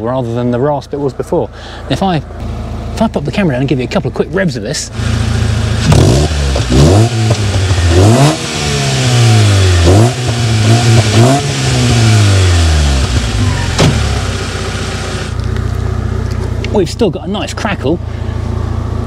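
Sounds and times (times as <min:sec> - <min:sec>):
engine idling: 0:00.0 - 0:19.0
exhaust crack: 0:00.0 - 0:19.0
car engine revving: 0:04.8 - 0:17.1.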